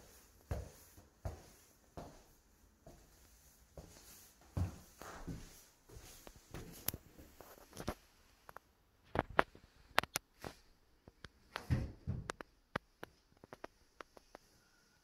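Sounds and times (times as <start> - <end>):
footsteps on tiles: 0.0 - 8.0.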